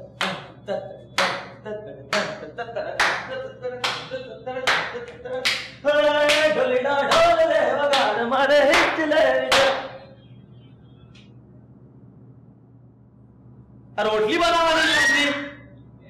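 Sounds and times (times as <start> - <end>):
person counting the beat: 0.0 - 8.2
man singing unaccompanied: 0.0 - 10.1
hand claps: 0.2 - 2.4, 3.0 - 10.0.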